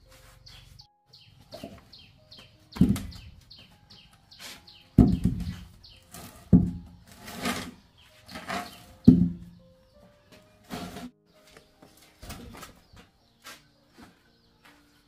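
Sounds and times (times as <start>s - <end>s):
small birds chirping: 0.0s - 7.2s, 7.8s - 10.6s, 11.3s - 15.0s
wooden stump thudding on concrete: 2.8s - 3.4s, 5.0s - 7.7s, 8.3s - 9.6s
wood scraping on concrete: 4.3s - 9.4s, 10.3s - 12.8s.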